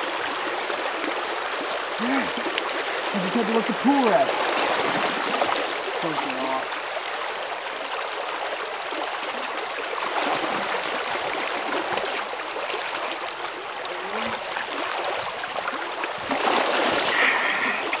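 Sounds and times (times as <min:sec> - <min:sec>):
creek water flowing: 0:00.0 - 0:18.0.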